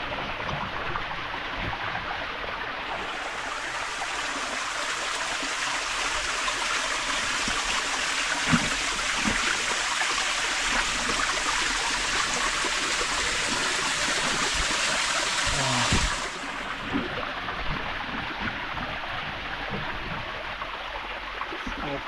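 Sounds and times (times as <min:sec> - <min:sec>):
water rushing and trickling: 0:00.0 - 0:22.0.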